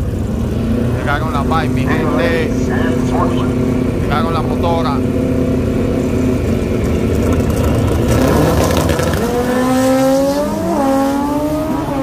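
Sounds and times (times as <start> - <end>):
heavy low rumble: 0.0 - 8.1
racing car engine accelerating: 0.0 - 12.0.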